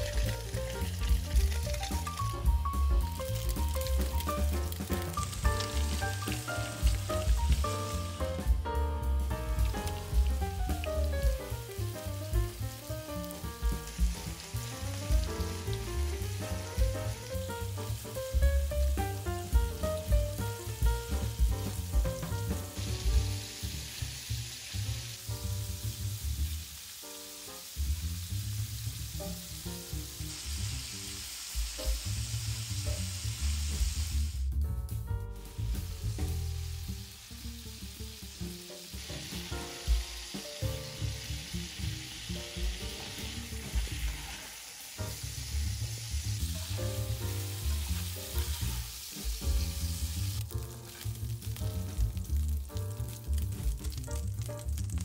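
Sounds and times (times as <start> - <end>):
quiet background music: 0.0 - 24.0
meat sizzling in hot oil: 0.0 - 34.5, 35.4 - 55.0.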